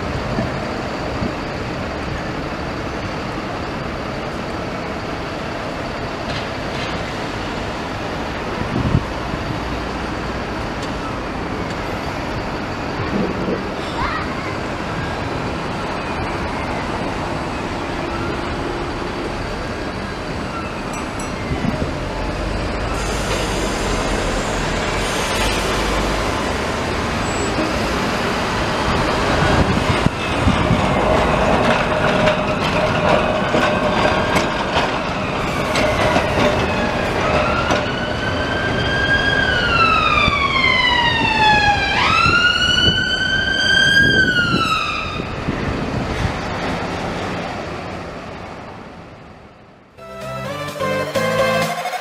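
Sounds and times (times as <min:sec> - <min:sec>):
road traffic: 0:00.0 - 0:52.0
trams running past: 0:00.0 - 0:52.0
emergency siren wailing: 0:36.7 - 0:45.4.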